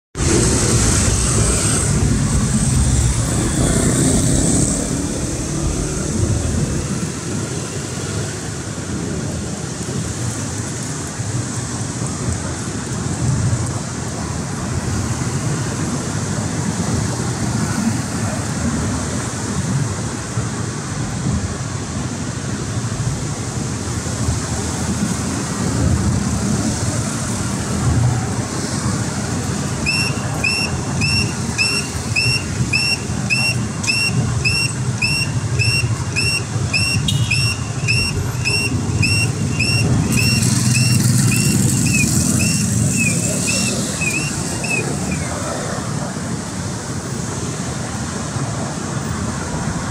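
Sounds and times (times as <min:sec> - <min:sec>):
road traffic: 0:00.2 - 0:49.9
crossing signal chirping: 0:29.7 - 0:45.3.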